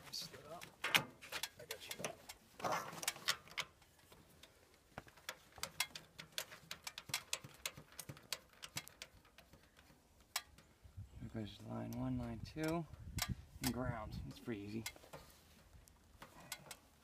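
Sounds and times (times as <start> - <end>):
handling rustle: 0.0 - 17.0
metal fitting clicking and tapping: 5.3 - 10.7, 12.6 - 13.8.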